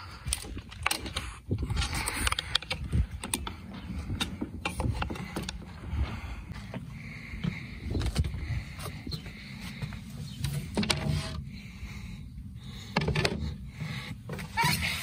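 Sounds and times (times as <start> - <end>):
wind rumble on microphone: 0.0 - 9.5.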